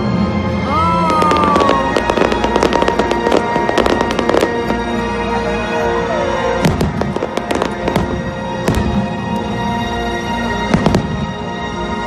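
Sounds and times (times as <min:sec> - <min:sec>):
music: 0:00.0 - 0:12.0
fireworks crackling bursts: 0:01.0 - 0:05.4, 0:06.7 - 0:09.4
fireworks bangs: 0:01.1 - 0:05.4, 0:06.6 - 0:09.4.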